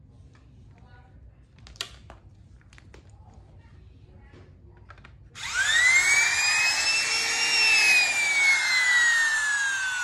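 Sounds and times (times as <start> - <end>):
trimmer motor whining: 5.4 - 10.0.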